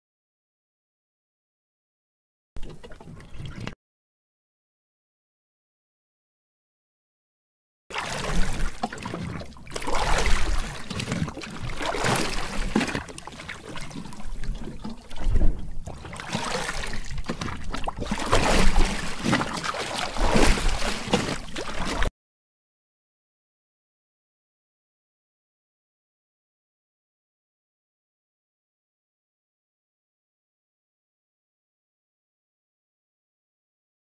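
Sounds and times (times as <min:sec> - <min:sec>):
paddles splashing through water: 0:07.9 - 0:22.1.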